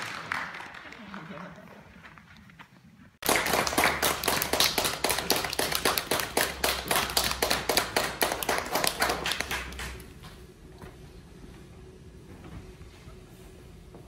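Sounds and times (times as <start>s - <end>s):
audience applauding: 0.0s - 1.9s, 3.2s - 10.1s.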